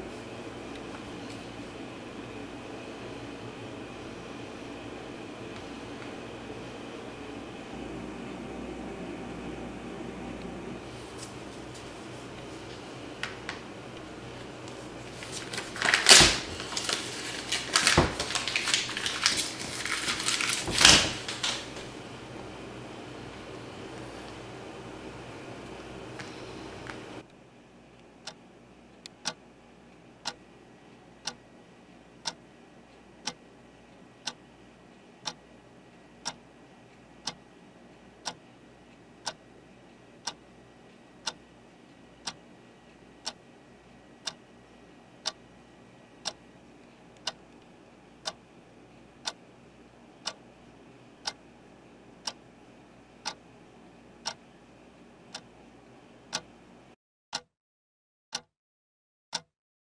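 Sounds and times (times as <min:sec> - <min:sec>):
clock ticking: 0:29.0 - 0:29.4, 0:31.2 - 0:31.4, 0:32.2 - 0:32.4, 0:33.2 - 0:33.4, 0:34.2 - 0:34.4, 0:35.2 - 0:35.4, 0:36.2 - 0:36.5, 0:38.2 - 0:39.4, 0:40.2 - 0:40.4, 0:42.2 - 0:42.4, 0:45.2 - 0:45.4.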